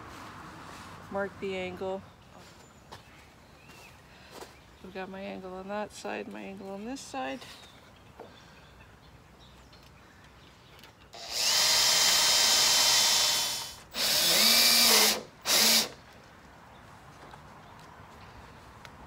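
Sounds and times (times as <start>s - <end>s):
cordless drill drilling wood: 11.2s - 16.0s.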